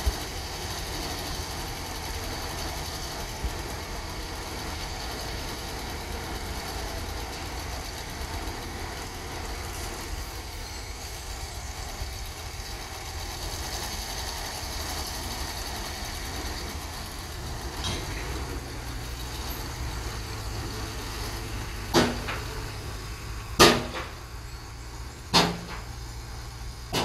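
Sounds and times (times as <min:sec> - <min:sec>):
diesel truck engines running: 0:00.0 - 0:27.0
dirt tipping from trucks: 0:13.5 - 0:27.0.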